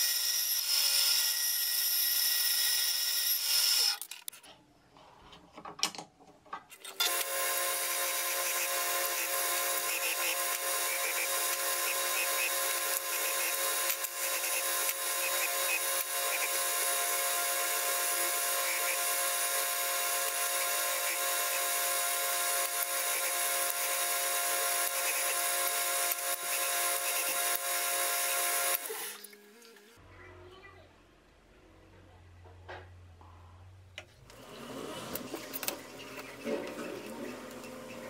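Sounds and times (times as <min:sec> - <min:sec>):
belt grinder running: 0:00.0 - 0:04.1, 0:07.0 - 0:29.3.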